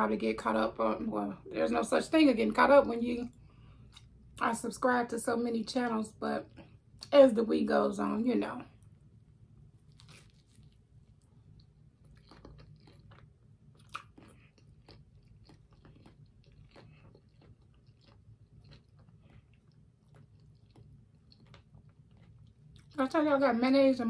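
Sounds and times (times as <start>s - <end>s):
chewing crunchy sandwich: 8.8s - 23.0s
bite into sandwich: 9.8s - 11.2s.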